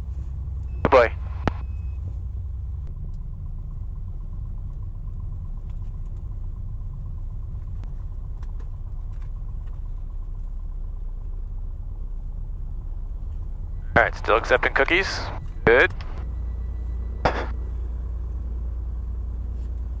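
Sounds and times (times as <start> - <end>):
faint steady tone: 0.0 - 5.6, 9.9 - 20.0
aircraft engine low rumble: 0.0 - 20.0.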